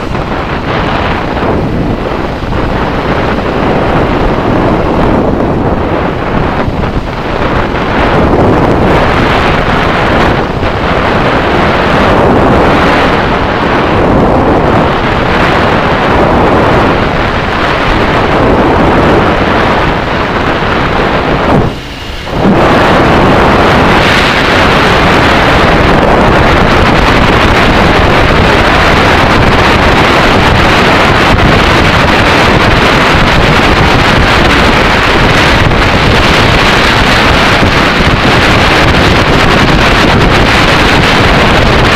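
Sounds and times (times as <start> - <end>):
wind rush on microphone: 0.0 - 41.9.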